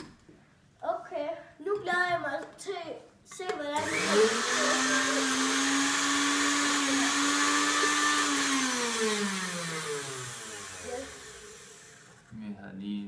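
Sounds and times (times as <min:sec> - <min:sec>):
blender motor whining: 0:03.8 - 0:12.3.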